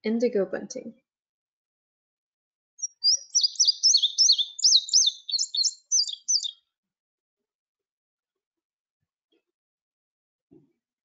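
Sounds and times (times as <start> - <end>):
bird song of quick high notes: 2.8 - 6.6.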